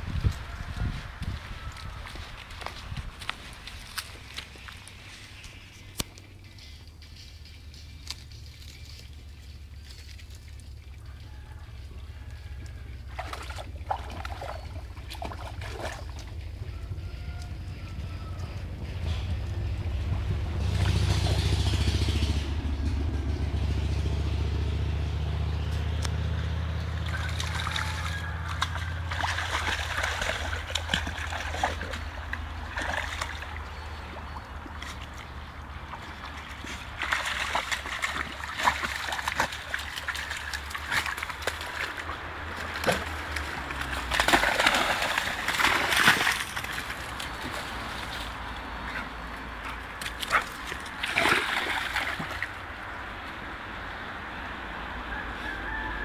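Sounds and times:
dog splashing in water: 13.0s - 16.4s, 26.8s - 49.0s, 49.7s - 52.6s.

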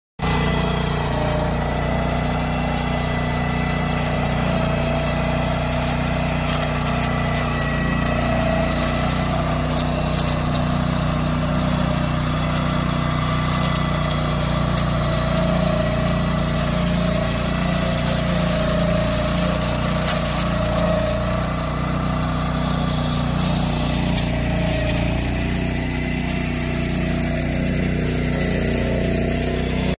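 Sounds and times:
tractor engine under load: 0.2s - 30.0s.

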